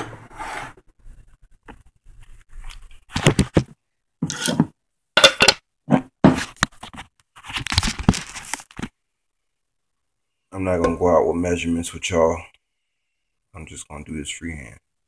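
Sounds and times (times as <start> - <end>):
scraping and rustling around jar: 4.3 - 5.5.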